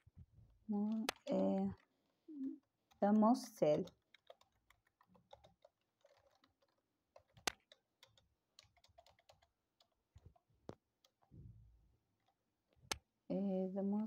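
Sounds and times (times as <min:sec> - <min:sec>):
keyboard keystrokes: 0:02.9 - 0:11.3.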